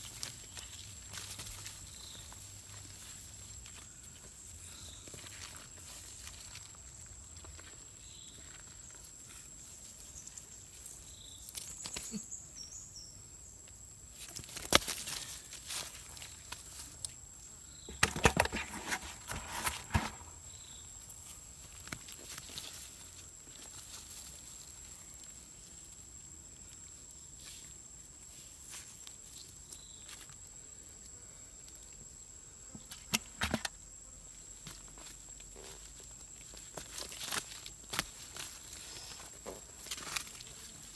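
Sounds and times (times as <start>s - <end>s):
fish flapping in plastic bucket: 17.9s - 20.3s.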